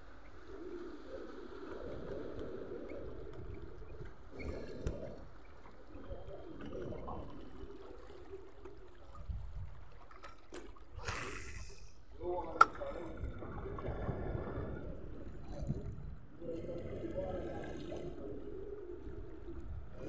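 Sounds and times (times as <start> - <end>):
wind on microphone: 9.0 - 9.9, 13.0 - 20.0.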